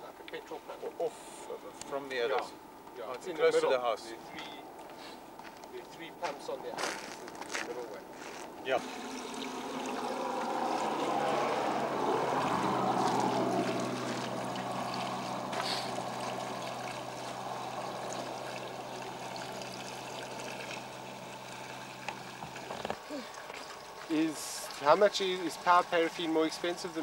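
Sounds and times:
steady low hum: 0:08.0 - 0:24.8
fuel pouring gurgling: 0:08.6 - 0:27.0.

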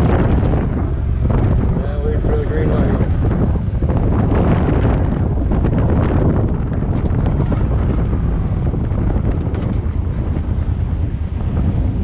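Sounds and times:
motorcycle engine running: 0:00.0 - 0:12.0
wind buffeting microphone: 0:00.0 - 0:12.0.

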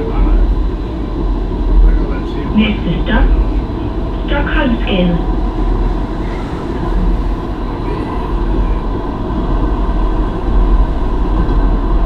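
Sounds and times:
low hum: 0:00.0 - 0:12.0
tram rumbling along track: 0:00.0 - 0:12.0.

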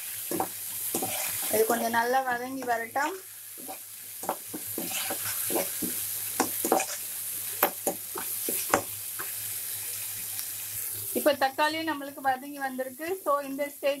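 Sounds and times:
food sizzling in oil: 0:00.0 - 0:14.0
spatula scraping frying pan: 0:00.3 - 0:02.0, 0:03.6 - 0:07.0.

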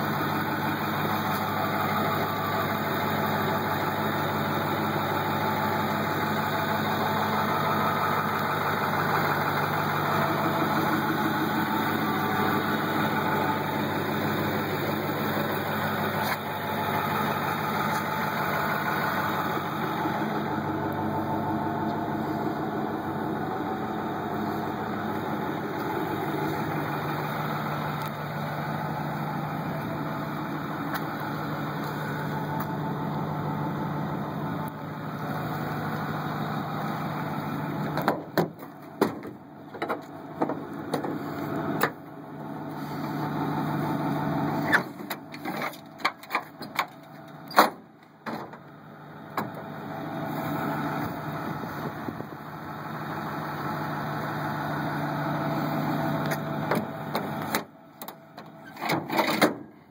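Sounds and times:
diesel engine idling: 0:00.0 - 0:59.9
sharp clicks and knocks: 0:37.9 - 0:41.2, 0:44.8 - 0:48.6, 0:56.3 - 0:59.6.

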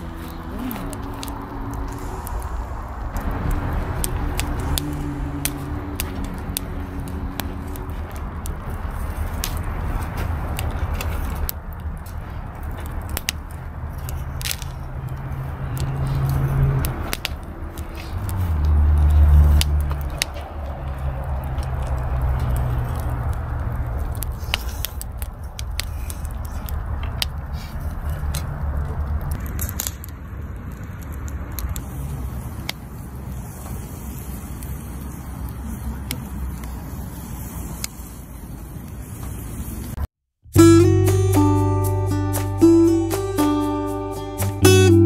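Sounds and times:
low rumble: 0:00.0 - 0:29.5
firewood crackling and popping: 0:00.0 - 0:45.0.

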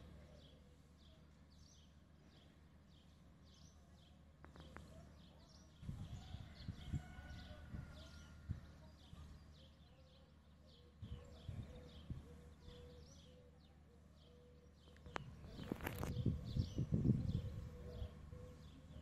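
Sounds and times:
small birds chirping: 0:00.0 - 0:19.0
wind buffeting microphone: 0:05.8 - 0:08.7, 0:11.0 - 0:12.3, 0:15.2 - 0:18.4.

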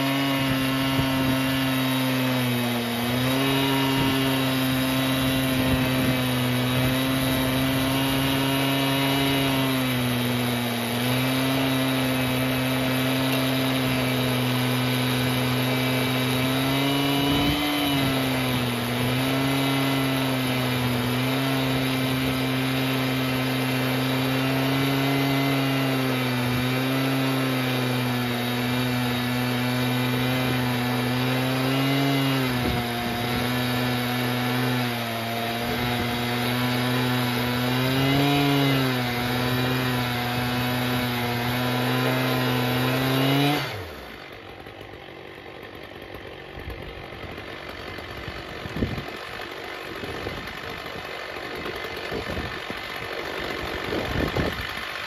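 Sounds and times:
chainsaw cutting through log: 0:00.0 - 0:55.0.

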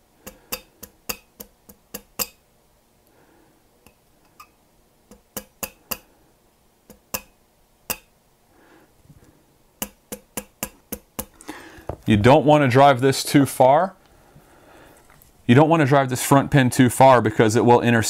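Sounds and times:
mallet tapping steel pin punch: 0:00.2 - 0:02.4, 0:05.1 - 0:06.1, 0:06.9 - 0:08.1, 0:09.8 - 0:11.4.

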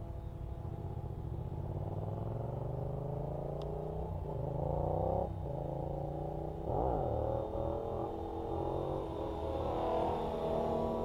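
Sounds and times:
rc helicopter motor whine: 0:06.4 - 0:11.0.

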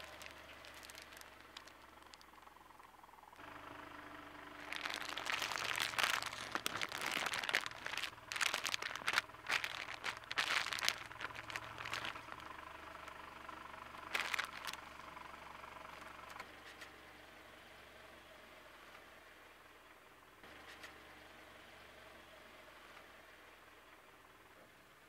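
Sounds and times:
plastic bag crinkling: 0:00.0 - 0:02.3, 0:04.6 - 0:12.5, 0:14.1 - 0:14.8.

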